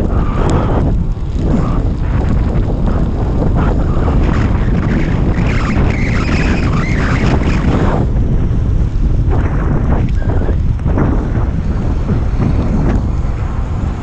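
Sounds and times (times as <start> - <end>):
wind buffeting microphone: 0.0 - 14.0
tyres hissing on wet asphalt: 6.6 - 14.0.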